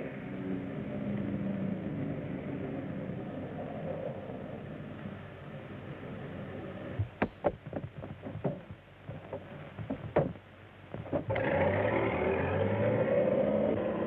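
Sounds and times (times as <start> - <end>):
sharp knocks and clatters: 7.0 - 11.4.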